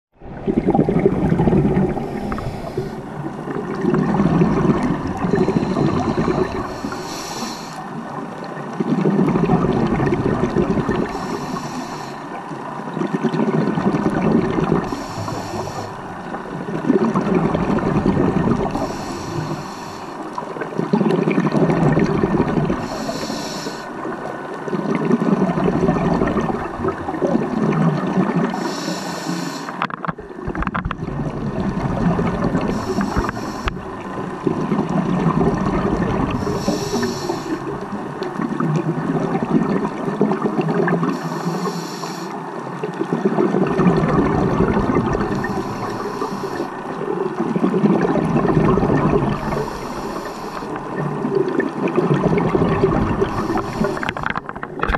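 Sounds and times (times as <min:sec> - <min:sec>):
exhaled bubbles rushing: 0:00.2 - 0:28.7, 0:30.0 - 0:41.4, 0:42.6 - 0:54.9
regulator hissing inhale: 0:01.9 - 0:03.2, 0:05.2 - 0:07.9, 0:11.0 - 0:12.4, 0:14.8 - 0:16.3, 0:18.7 - 0:20.3, 0:22.8 - 0:24.0, 0:28.5 - 0:29.8, 0:32.6 - 0:33.8, 0:36.3 - 0:37.9, 0:41.1 - 0:42.4, 0:45.2 - 0:46.8, 0:49.3 - 0:51.0, 0:53.2 - 0:54.3.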